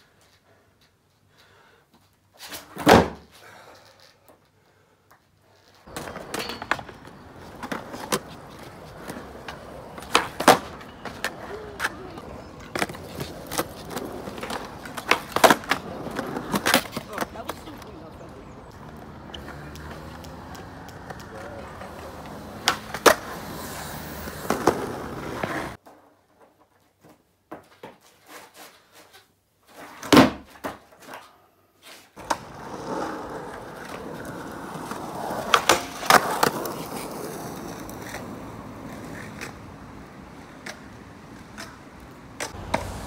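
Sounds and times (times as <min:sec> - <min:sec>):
skateboard wheels rolling on concrete: 0:00.0 - 0:43.0
skateboard clacking on ground: 0:05.8 - 0:25.8, 0:32.2 - 0:43.0.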